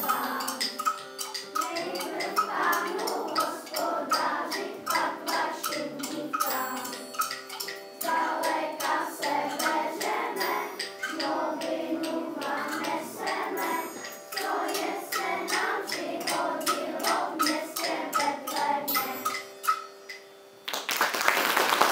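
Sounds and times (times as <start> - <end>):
children singing in unison: 0.0 - 19.4
sharp percussive ticks: 0.0 - 20.3.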